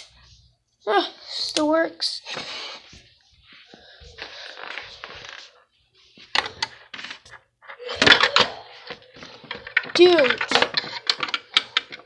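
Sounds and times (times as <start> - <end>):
hard objects clicking and knocking: 6.4 - 12.0.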